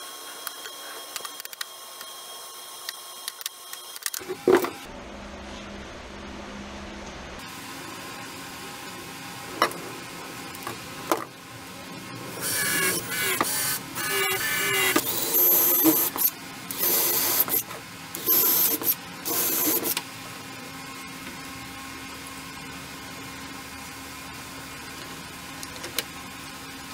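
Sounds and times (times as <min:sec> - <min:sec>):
cordless drill whirring: 0:12.4 - 0:20.0.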